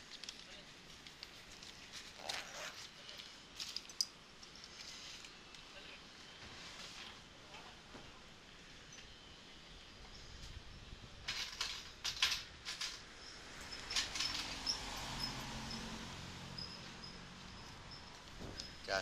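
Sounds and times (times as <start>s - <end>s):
rustling and clicking handling: 0.0s - 5.7s.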